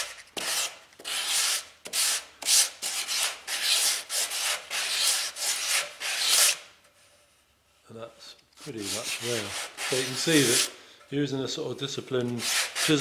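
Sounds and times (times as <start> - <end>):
sandpaper rubbing on wood: 0.0 - 6.6, 8.6 - 10.7, 12.3 - 13.0.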